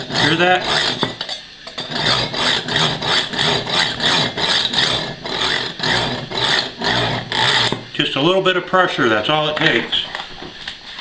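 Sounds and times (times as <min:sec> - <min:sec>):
knife rasping through sharpener: 0:00.0 - 0:07.8.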